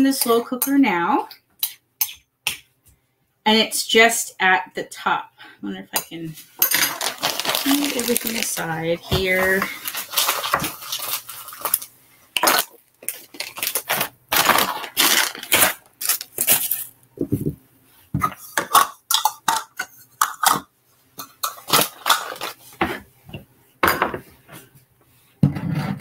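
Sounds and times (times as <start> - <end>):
dishes and utensils clattering: 6.0 - 8.3, 18.2 - 23.0.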